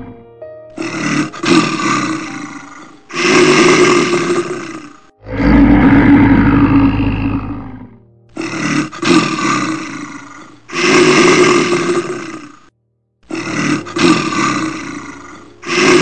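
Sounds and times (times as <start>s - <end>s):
bears roaring: 0.8s - 16.0s.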